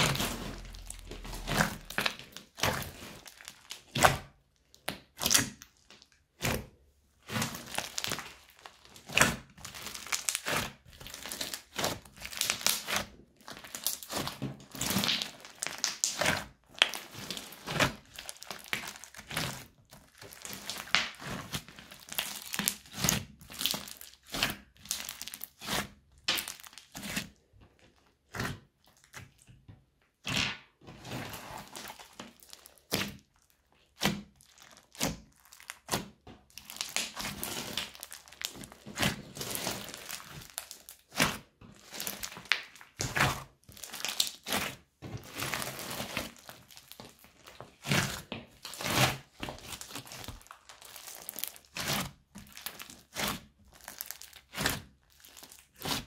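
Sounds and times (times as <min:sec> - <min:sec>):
slime squelching: 0:00.0 - 0:56.0
slime popping: 0:07.3 - 0:27.2, 0:31.6 - 0:44.7, 0:45.3 - 0:56.0.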